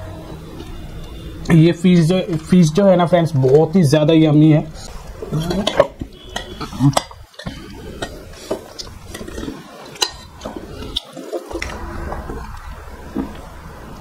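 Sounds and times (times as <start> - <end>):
spoon clinking against metal pot: 5.6 - 8.2.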